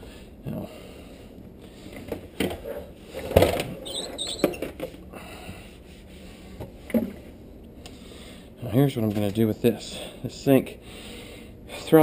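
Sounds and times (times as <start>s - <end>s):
brief squeak: 3.8s - 4.6s.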